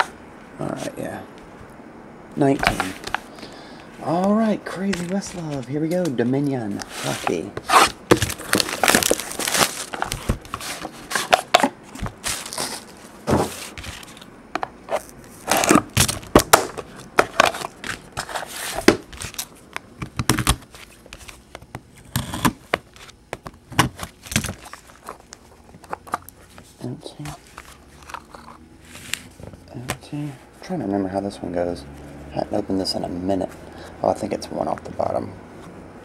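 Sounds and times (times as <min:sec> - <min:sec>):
cardboard and wrapping rustling: 0:02.6 - 0:03.4, 0:04.0 - 0:14.3.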